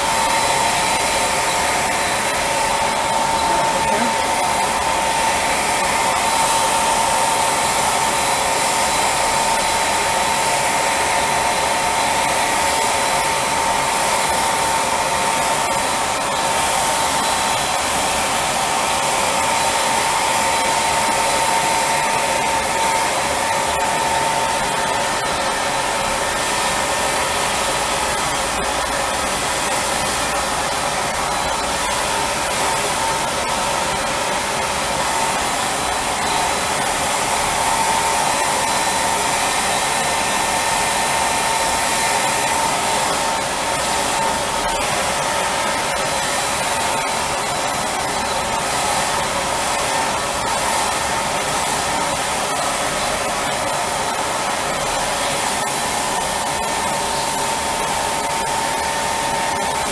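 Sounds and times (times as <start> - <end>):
turbine air rush with whine: 0.0 - 59.9.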